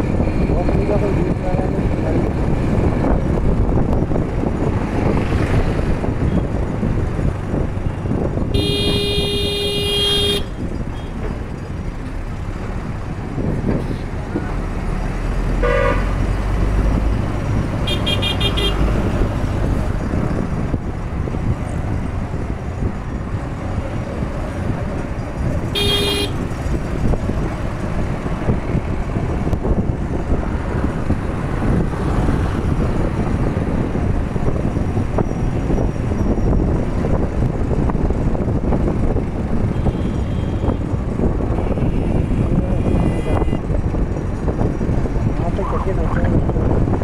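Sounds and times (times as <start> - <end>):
road traffic noise: 0.0 - 47.0
vehicle horn toots: 8.6 - 11.1, 15.6 - 16.1, 17.9 - 18.8, 25.8 - 26.4.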